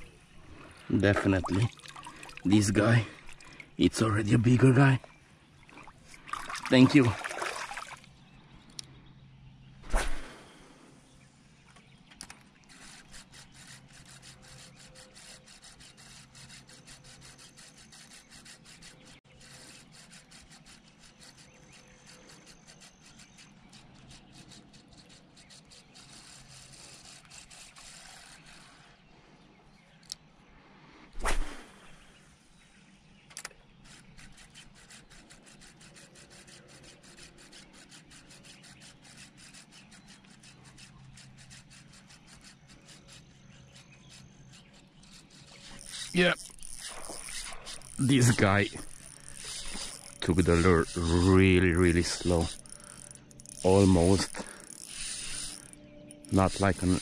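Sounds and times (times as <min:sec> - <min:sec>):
spinning reel whirring: 0:12.7 - 0:28.6, 0:33.8 - 0:57.0.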